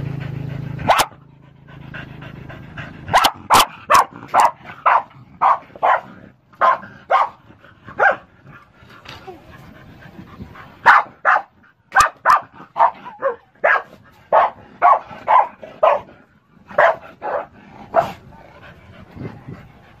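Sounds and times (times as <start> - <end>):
dog barking: 0.9 - 1.2, 3.1 - 7.4, 8.0 - 8.3, 10.8 - 16.1, 16.7 - 18.2.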